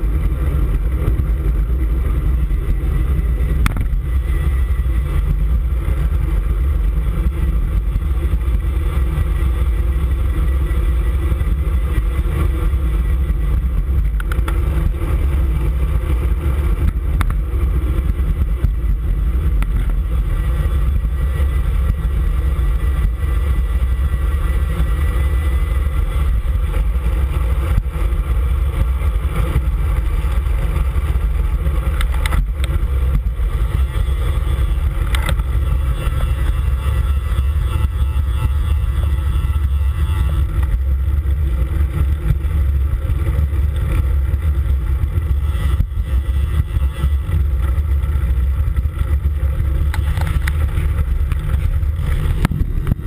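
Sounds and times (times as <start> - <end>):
road rumble: 0.0 - 53.0
wind buffeting: 48.8 - 53.0.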